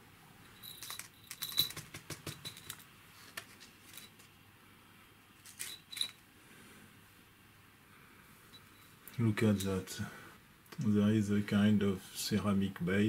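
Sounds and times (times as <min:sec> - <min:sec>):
small metal parts clattering on table: 0:00.6 - 0:04.3, 0:05.4 - 0:06.2.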